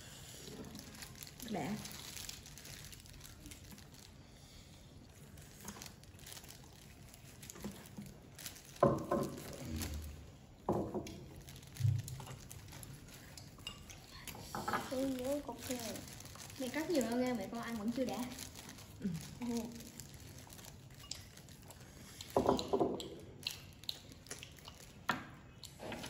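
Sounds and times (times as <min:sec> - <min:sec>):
plastic glove crinkling: 0:00.4 - 0:26.0
cleaver carving meat: 0:04.9 - 0:26.0.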